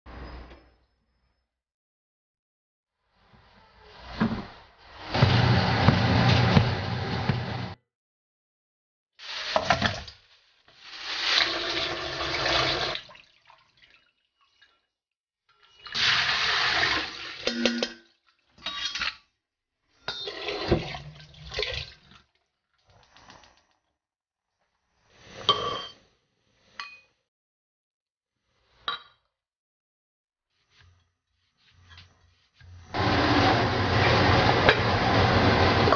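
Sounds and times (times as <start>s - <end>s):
water running: 10.8s - 14.7s, 20.2s - 23.4s.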